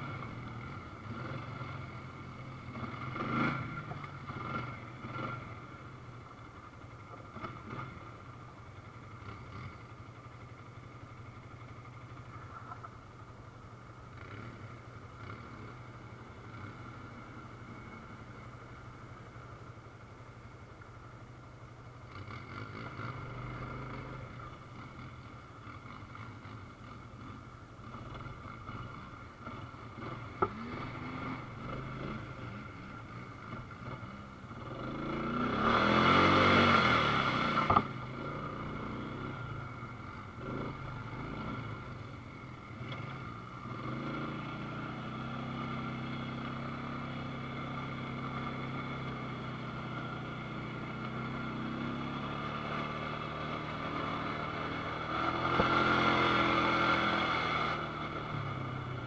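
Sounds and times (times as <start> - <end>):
atv engine running: 0.0 - 59.0.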